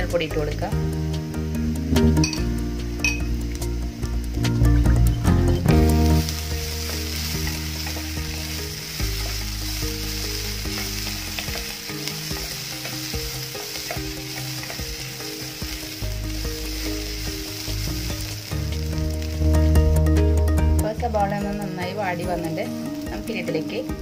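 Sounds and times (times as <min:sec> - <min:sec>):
onions sizzling in a pan: 0:00.0 - 0:24.0.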